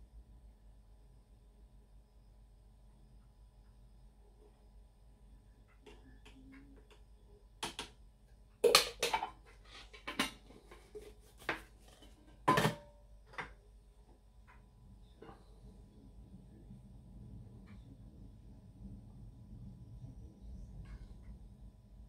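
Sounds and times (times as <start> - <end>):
metal tins clinking and knocking: 8.6 - 13.6.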